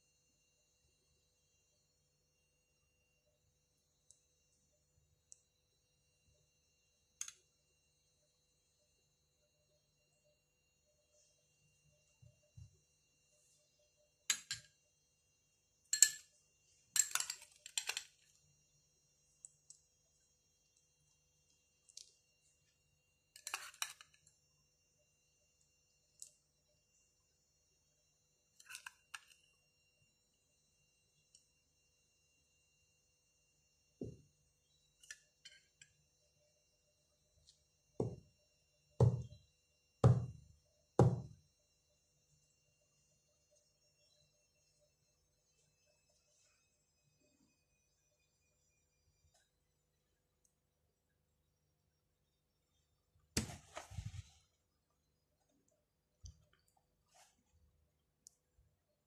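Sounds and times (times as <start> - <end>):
metal spoon clinking glass: 15.9 - 16.3, 17.0 - 18.1
glass knocking on cloth-covered table: 38.0 - 38.3, 39.0 - 39.4, 40.0 - 40.4, 41.0 - 41.3.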